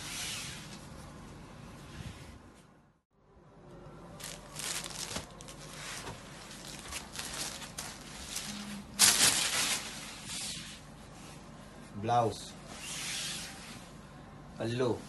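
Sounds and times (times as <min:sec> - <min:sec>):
silk fabric rustling: 0:04.2 - 0:11.4.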